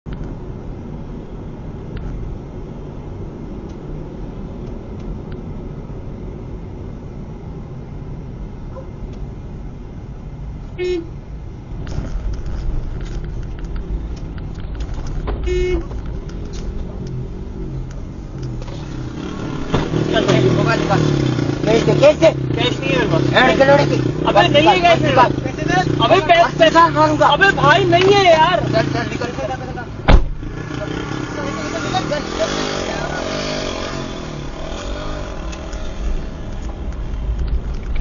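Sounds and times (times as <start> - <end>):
car road and engine rumble: 0.0 - 38.0
car horn toots: 10.8 - 11.2, 15.4 - 15.9.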